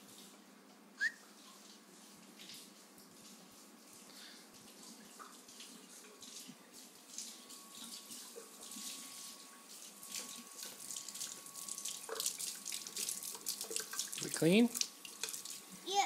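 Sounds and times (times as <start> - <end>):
faucet running into sink: 5.0 - 15.7.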